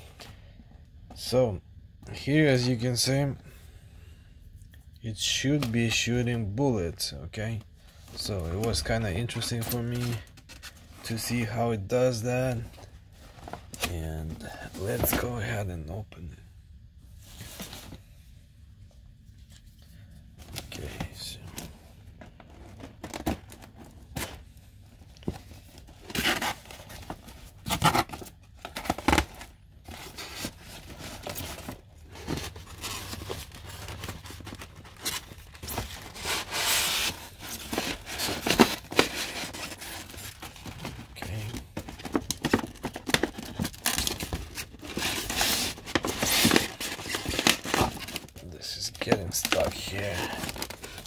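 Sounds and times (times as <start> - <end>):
packaging rustling and crinkling: 20.5 - 51.0.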